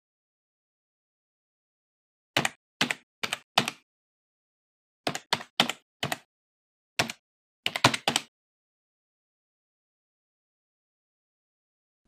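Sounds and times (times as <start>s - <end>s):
keyboard keystrokes: 2.4s - 3.8s, 5.1s - 6.3s, 7.0s - 8.3s.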